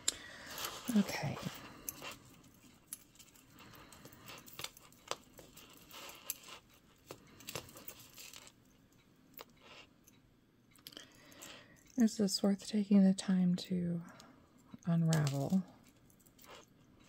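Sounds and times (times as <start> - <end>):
metal chain clinking and rattling: 0.4 - 9.9, 14.8 - 17.0.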